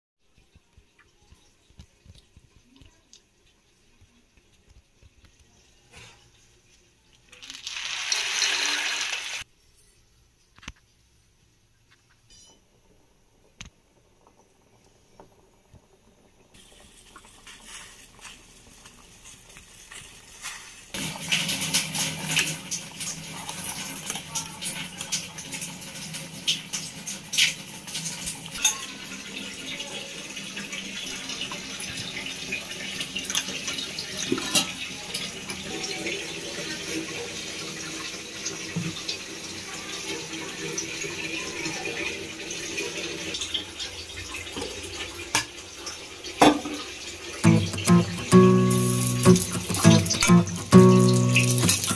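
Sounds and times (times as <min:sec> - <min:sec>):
pot boiling hard: 0:07.4 - 0:09.5, 0:13.3 - 0:29.3, 0:42.8 - 0:51.9.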